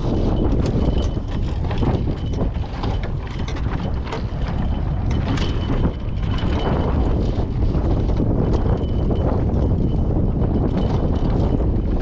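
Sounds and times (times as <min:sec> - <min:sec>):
boat hardware clicking and rattling: 0:00.0 - 0:12.0
wind rumbling on microphone: 0:00.0 - 0:12.0.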